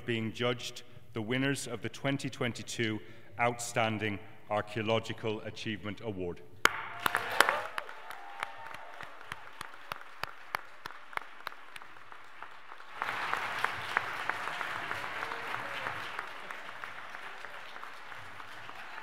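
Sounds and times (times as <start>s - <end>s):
audience applauding: 6.7s - 19.0s.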